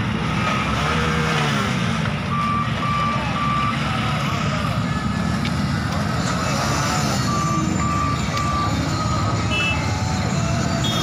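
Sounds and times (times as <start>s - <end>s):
diesel engine running: 0.0s - 11.0s
electronic warning beeps: 2.3s - 3.9s, 7.0s - 9.8s.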